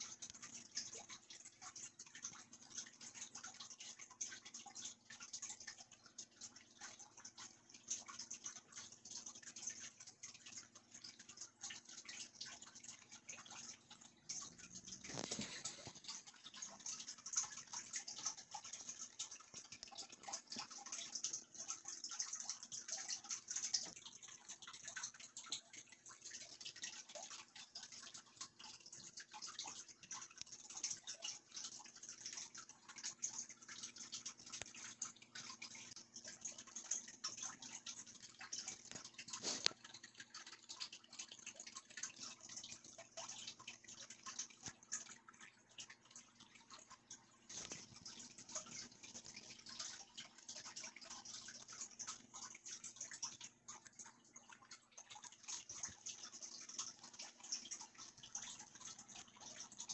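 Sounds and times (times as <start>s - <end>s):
handling noise rustling and clicks: 14.8s - 16.2s.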